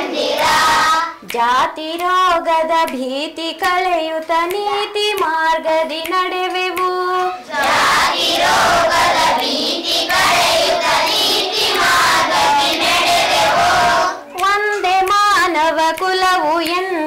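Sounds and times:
children singing in chorus: 0:00.0 - 0:01.3, 0:07.1 - 0:14.8
teacher singing lead: 0:00.0 - 0:17.0.

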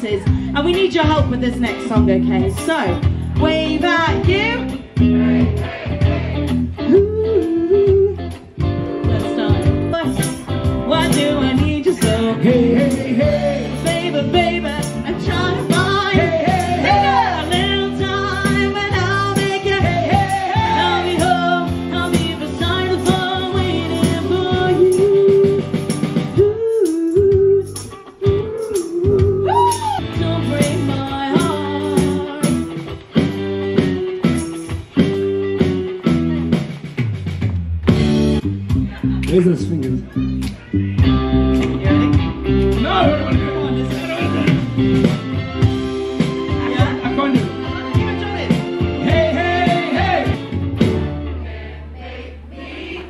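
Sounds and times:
live band playing: 0:00.0 - 0:51.7
person singing: 0:06.8 - 0:32.7.

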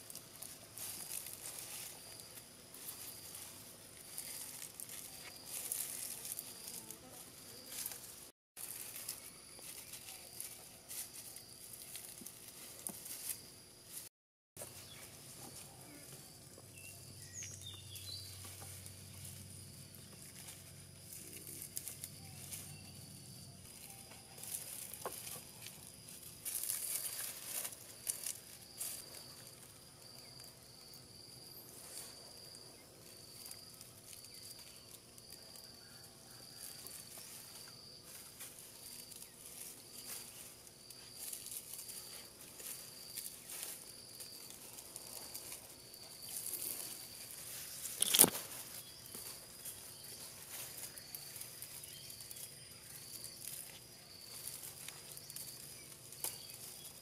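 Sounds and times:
grass stems rustling: 0:00.0 - 0:57.0
high pulsing insect call: 0:00.0 - 0:57.0.

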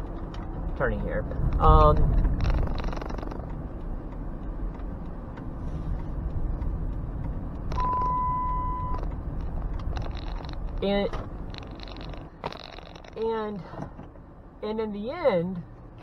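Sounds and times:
van engine and road noise: 0:00.0 - 0:16.0
high electronic beep: 0:07.7 - 0:09.0.

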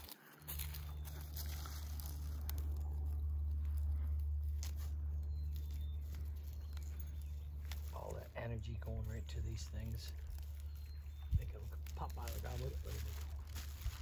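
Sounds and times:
plastic bag handled: 0:00.0 - 0:03.2, 0:03.8 - 0:14.0
dry reeds crackling: 0:00.0 - 0:14.0
wind rumble on microphone: 0:12.9 - 0:14.0.

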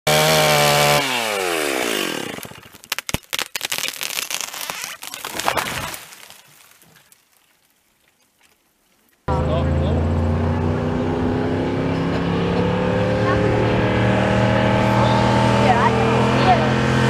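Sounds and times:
chainsaw engine: 0:00.1 - 0:02.9, 0:09.3 - 0:17.0
wood cracking and snapping: 0:01.9 - 0:09.3
tree crashing into snow: 0:02.1 - 0:07.7.

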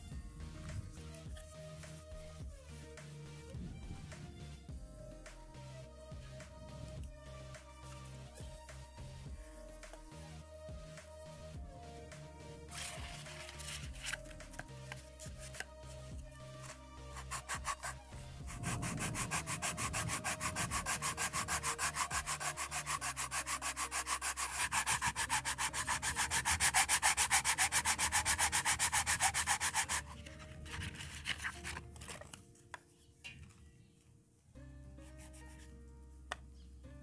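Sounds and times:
pipe rubbed on sandpaper: 0:12.7 - 0:15.6, 0:16.6 - 0:31.8.

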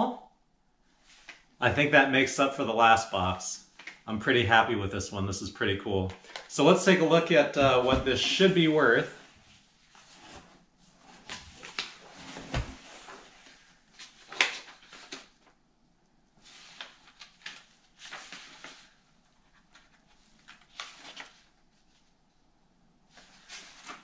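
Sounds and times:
paper rustling: 0:06.1 - 0:15.6, 0:16.4 - 0:22.2, 0:23.1 - 0:24.0.

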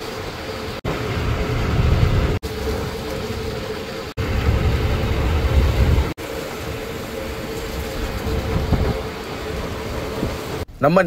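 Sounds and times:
boat engine humming: 0:00.0 - 0:10.8
wind and sea rumble: 0:00.0 - 0:11.0.

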